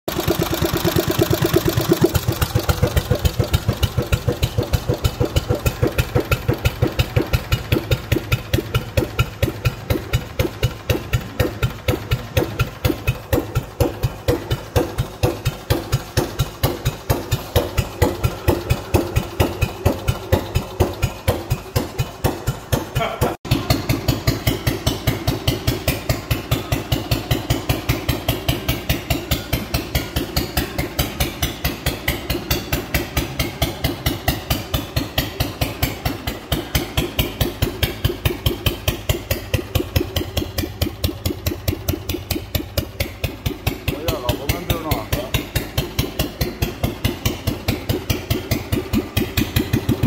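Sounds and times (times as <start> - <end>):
engine idling: 0.1 - 50.0.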